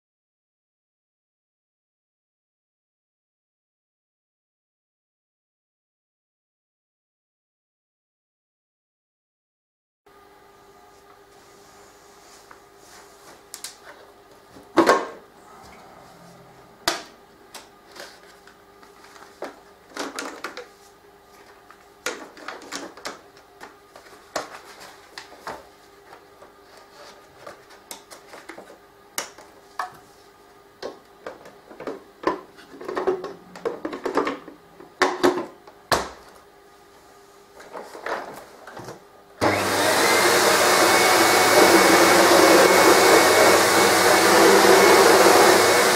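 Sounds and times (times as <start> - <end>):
vacuum cleaner motor running: 15.4 - 17.2, 39.4 - 45.9.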